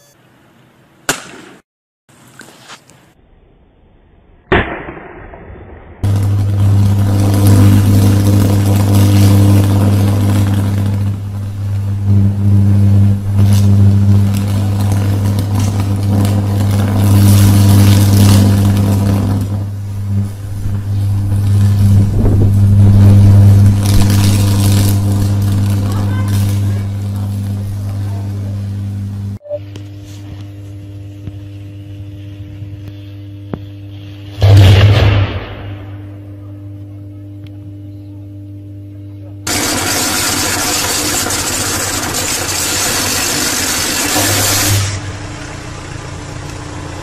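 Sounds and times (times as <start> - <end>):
sharp crack: 1.1 - 1.6, 4.4 - 28.0, 34.4 - 36.1
electrical arc buzzing and crackling: 6.0 - 46.6.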